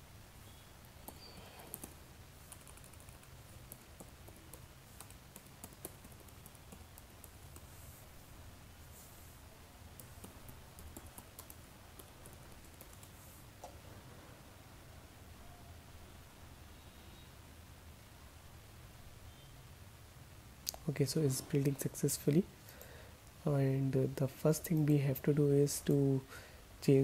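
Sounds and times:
typing on computer keyboard: 1.0s - 7.7s, 10.0s - 13.7s.

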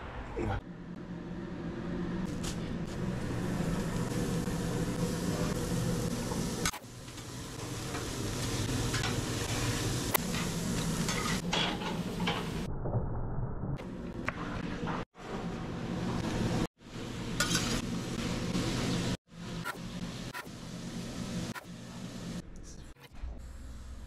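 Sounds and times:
rushing kitchen hum: 0.6s - 12.7s
meat sizzling on a grill: 3.4s - 11.4s.

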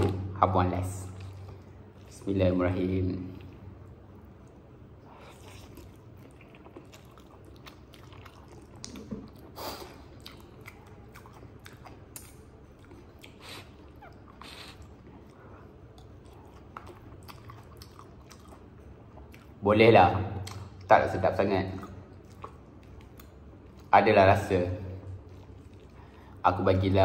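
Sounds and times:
person chewing noodles: 3.3s - 19.6s, 21.8s - 23.9s, 25.1s - 26.4s
soft mouth clicks: 8.8s - 18.5s, 20.4s - 20.9s.

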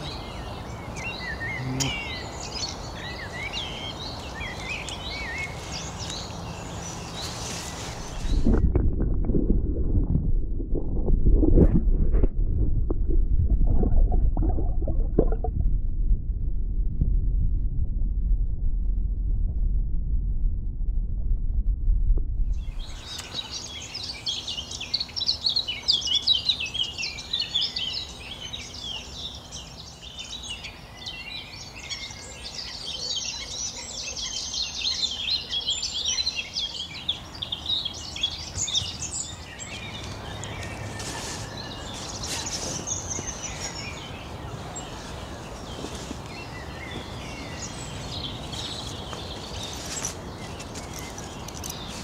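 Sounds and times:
small birds chirping: 0.0s - 8.6s, 22.6s - 52.0s.

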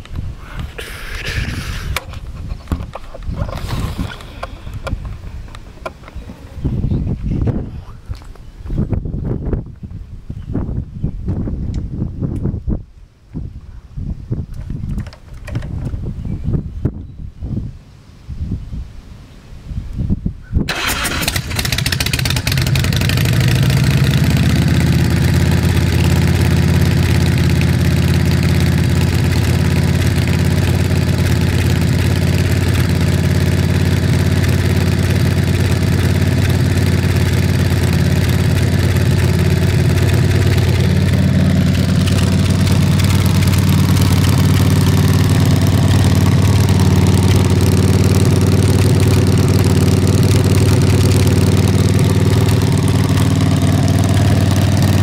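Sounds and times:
motorcycle engine starting: 1.1s - 5.1s, 20.7s - 55.0s
motorcycle engine idling: 20.7s - 55.0s.

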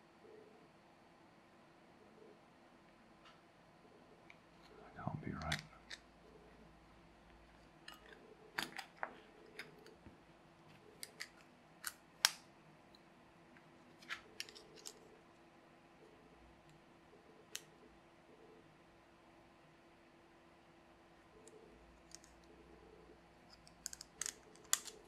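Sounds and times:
faint fan hum: 0.0s - 25.0s.

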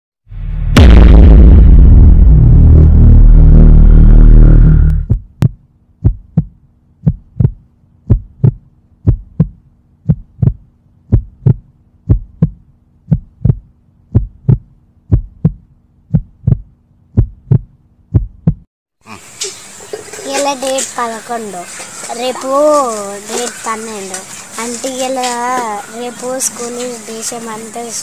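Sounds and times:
music hit with deep boom: 0.3s - 5.2s
heartbeat double thumps: 0.8s - 18.7s
faint steady hum: 3.8s - 18.3s.

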